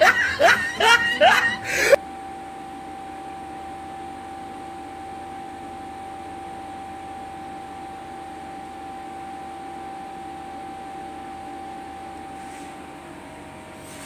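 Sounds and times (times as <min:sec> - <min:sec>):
steady mid-pitched hum: 0:00.0 - 0:14.0.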